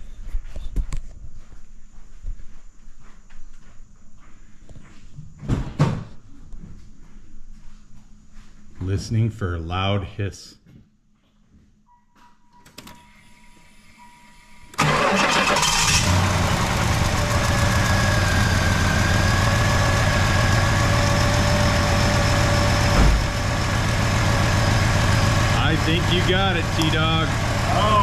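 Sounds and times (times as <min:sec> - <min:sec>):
car engine starting and idling: 0:14.6 - 0:28.0
low thump: 0:22.9 - 0:23.4.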